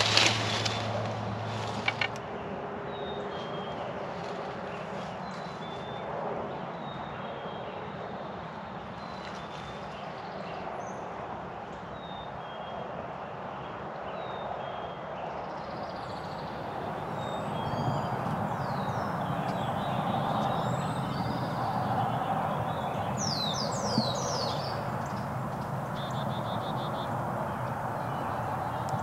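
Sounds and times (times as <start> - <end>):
songbirds chirping: 14.2 - 29.0
low rushing background: 16.2 - 29.0.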